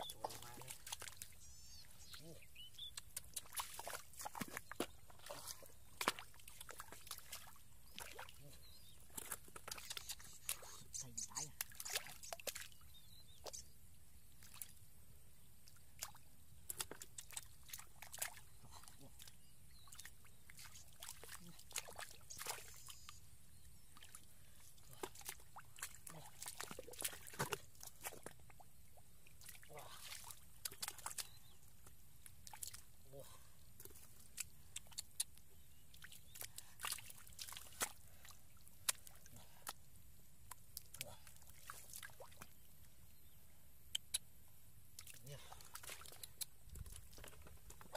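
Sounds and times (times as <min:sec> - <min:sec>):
hands splashing in muddy water: 0:00.0 - 0:01.4, 0:02.1 - 0:10.8, 0:16.0 - 0:23.1, 0:24.8 - 0:28.6, 0:29.4 - 0:31.4, 0:35.9 - 0:39.8.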